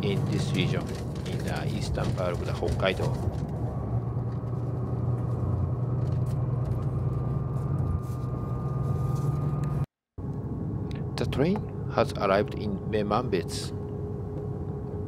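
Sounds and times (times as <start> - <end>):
wheel and rail noise: 0.0 - 9.8
train engine drone: 0.0 - 15.0.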